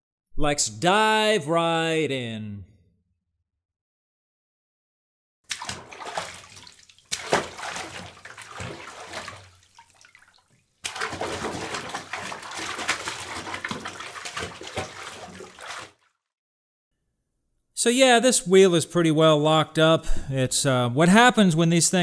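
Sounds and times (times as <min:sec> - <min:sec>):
water running in bathtub: 0:05.5 - 0:16.2.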